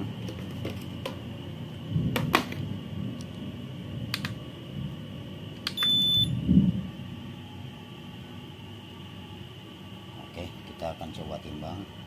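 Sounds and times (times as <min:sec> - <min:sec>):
kitchen scale beep: 0:05.8 - 0:06.3.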